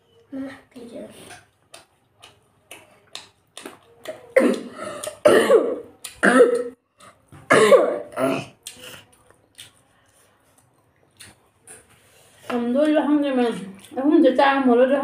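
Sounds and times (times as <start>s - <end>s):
woman coughing: 4.4s - 6.8s, 7.5s - 8.6s.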